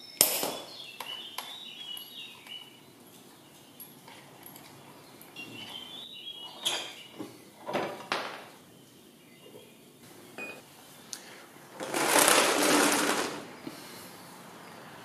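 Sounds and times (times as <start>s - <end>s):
plastic step stool scraping on floor: 11.8s - 13.5s.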